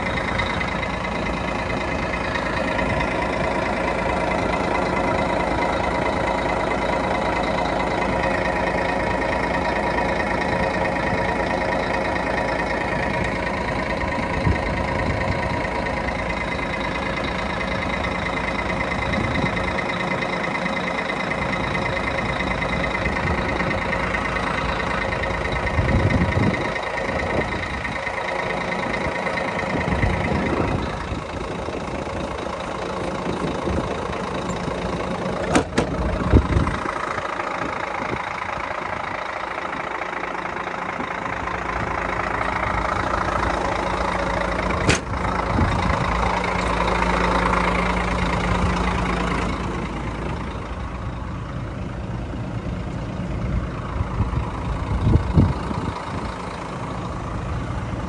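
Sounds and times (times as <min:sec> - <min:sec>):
diesel engine idling: 0:00.0 - 0:58.0.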